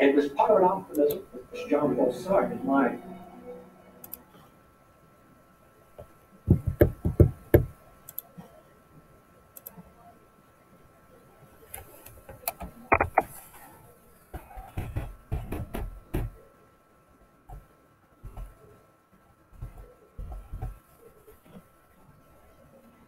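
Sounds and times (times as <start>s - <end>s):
sharp clicks: 8.0s - 8.3s.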